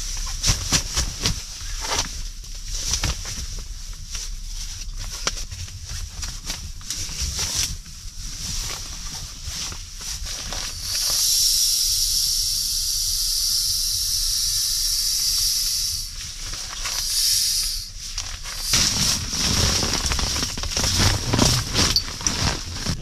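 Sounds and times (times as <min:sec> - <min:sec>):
steady hiss: 0:00.0 - 0:23.0
nylon rustling: 0:18.0 - 0:23.0.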